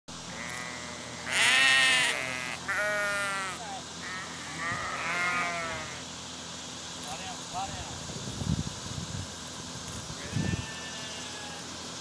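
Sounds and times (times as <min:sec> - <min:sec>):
sheep bleating: 0:00.3 - 0:06.0, 0:10.2 - 0:11.7.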